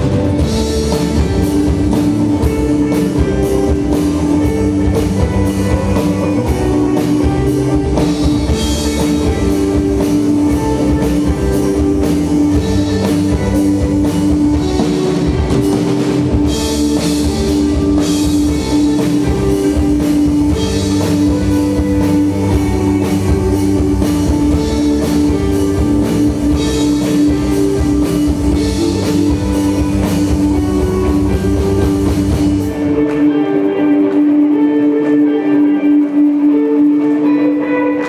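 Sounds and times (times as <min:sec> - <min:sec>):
bass guitar: 0:00.0 - 0:38.0
drum kit: 0:00.0 - 0:38.0.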